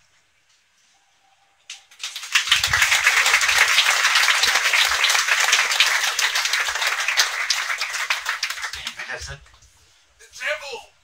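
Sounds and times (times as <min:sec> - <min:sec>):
audience applauding: 0:01.9 - 0:09.2.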